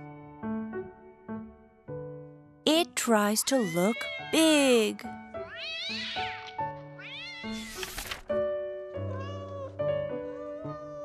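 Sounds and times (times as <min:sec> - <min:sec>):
soft background music: 0:00.0 - 0:11.0
kitten meowing: 0:03.4 - 0:04.5, 0:05.4 - 0:07.8, 0:09.1 - 0:11.0.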